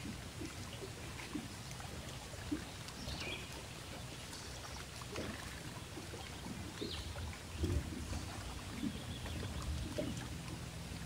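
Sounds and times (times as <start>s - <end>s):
water splashing against boat hull: 0.0s - 11.0s
steady low rumble: 5.9s - 11.0s.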